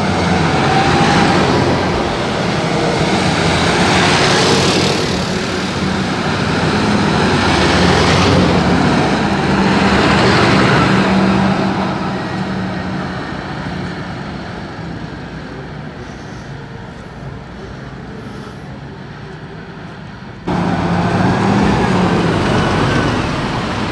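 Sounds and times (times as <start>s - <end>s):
diesel fire engines passing: 0.0s - 23.9s.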